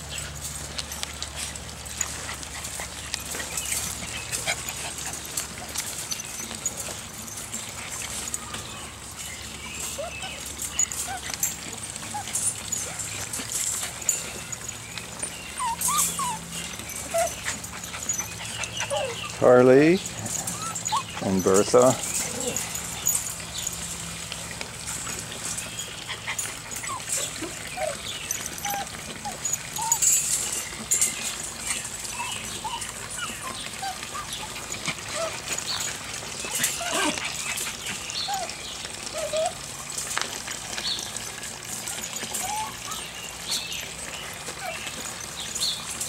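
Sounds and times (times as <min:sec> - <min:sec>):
puppies whimpering and squeaking: 0:00.0 - 0:46.0.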